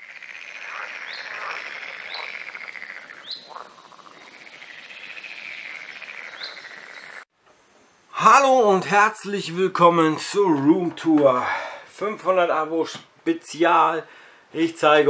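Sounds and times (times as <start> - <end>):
frogs calling: 0.0 - 7.3
sharp rising chirps: 0.2 - 7.3.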